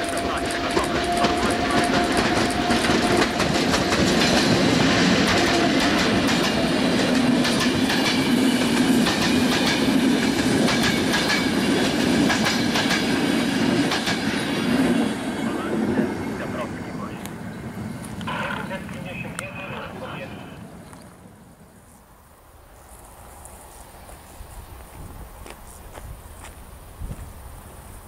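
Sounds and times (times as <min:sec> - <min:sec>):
wheels clicking over rail joints: 0:00.0 - 0:13.2
train coaches rumbling: 0:00.0 - 0:21.8.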